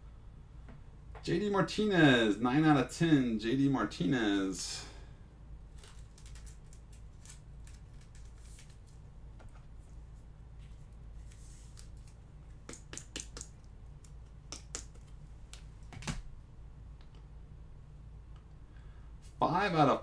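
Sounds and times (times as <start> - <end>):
low steady hum: 0.0 - 20.0.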